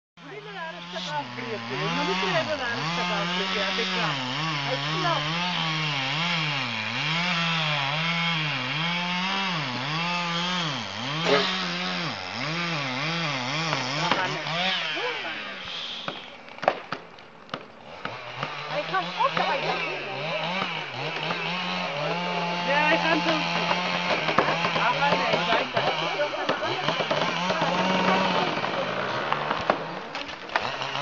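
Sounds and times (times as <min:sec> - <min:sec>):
chainsaw cutting tree trunk: 0:00.2 - 0:31.0
sharp wood cracks: 0:11.0 - 0:14.6, 0:16.0 - 0:21.8, 0:23.2 - 0:31.0.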